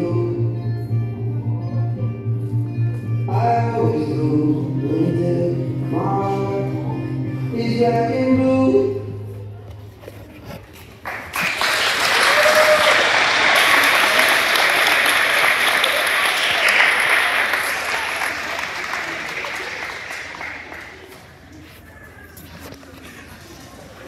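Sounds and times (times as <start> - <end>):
song with singing: 0.0 - 1.7, 3.2 - 9.6
audience applause: 11.0 - 21.4.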